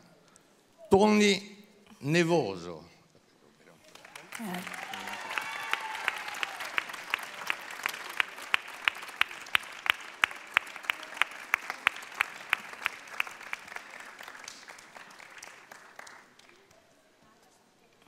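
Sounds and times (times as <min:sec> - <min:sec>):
audience applauding: 0:03.8 - 0:16.7
loud even claps: 0:03.9 - 0:16.6.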